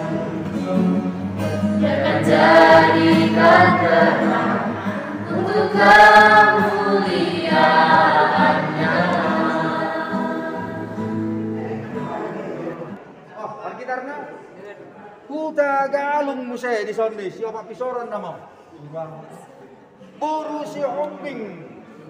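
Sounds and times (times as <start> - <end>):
youth choir singing a hymn: 0.0 - 12.4.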